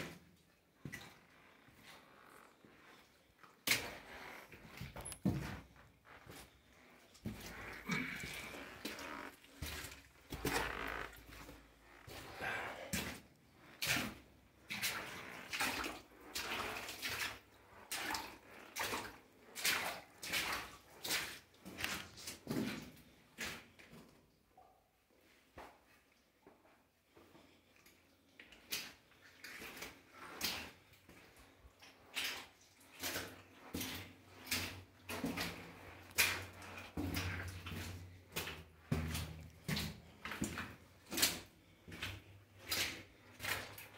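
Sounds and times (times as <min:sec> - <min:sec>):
footsteps on rocky floor: 0:03.8 - 0:13.7.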